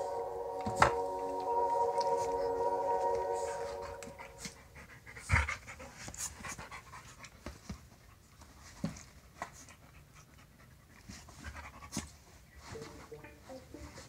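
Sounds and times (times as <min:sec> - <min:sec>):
dog panting: 0:03.8 - 0:12.8.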